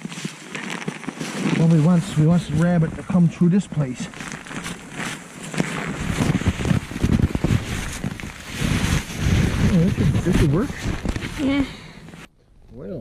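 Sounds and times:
rustling in brush: 0.0s - 3.2s, 3.8s - 12.3s
wind buffeting microphone: 5.9s - 11.4s.

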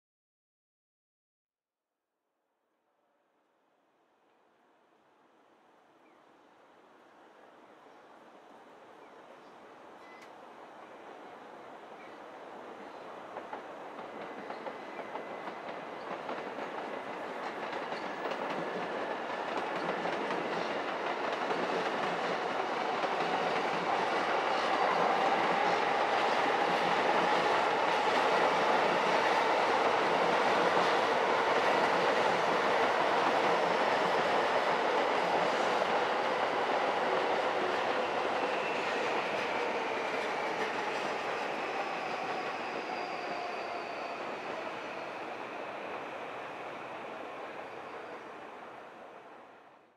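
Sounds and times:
faint train whine: 3.4s - 49.9s
train wheels on rails: 10.1s - 49.3s.

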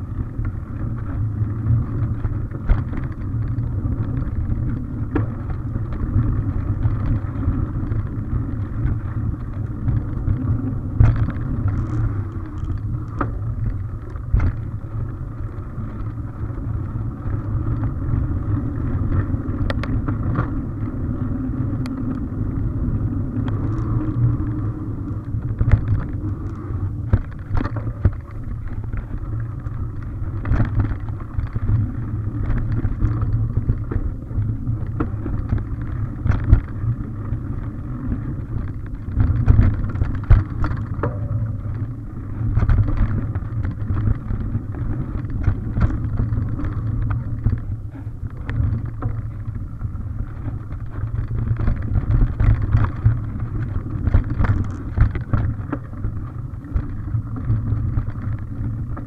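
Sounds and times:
bike knocks and rattles: 0.0s - 21.0s, 25.2s - 59.0s
bike tyres rumbling on dirt: 0.0s - 59.0s.

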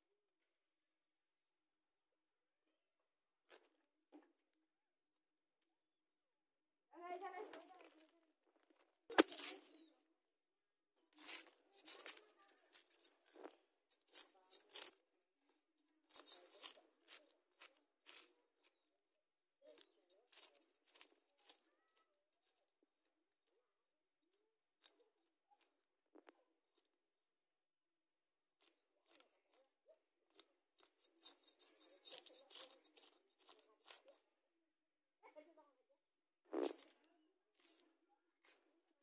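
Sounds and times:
fish scales scraping: 9.1s - 9.9s, 30.3s - 34.2s.

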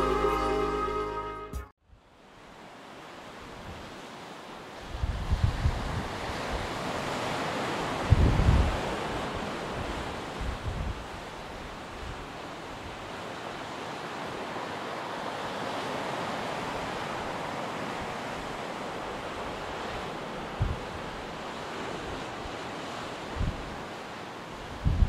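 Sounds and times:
ocean surf breaking: 2.4s - 25.0s
wind buffeting microphone: 4.8s - 7.0s, 7.7s - 12.9s, 16.6s - 22.6s, 23.2s - 23.9s, 24.6s - 25.0s.

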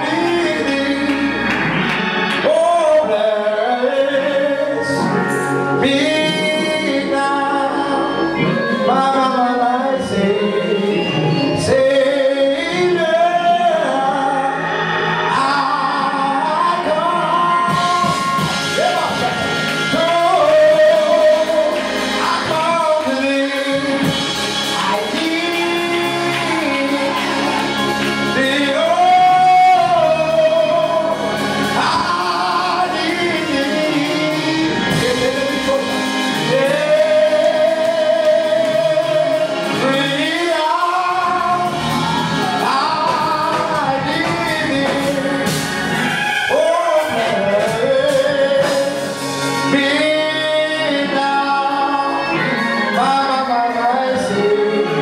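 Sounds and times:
man singing gospel: 0.0s - 55.0s
sustained keyboard accompaniment: 0.0s - 55.0s.

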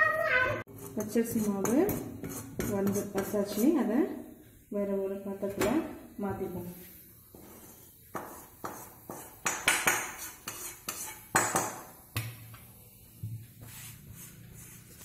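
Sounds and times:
metal spoon scraping a pan: 0.7s - 4.0s, 7.3s - 11.9s.

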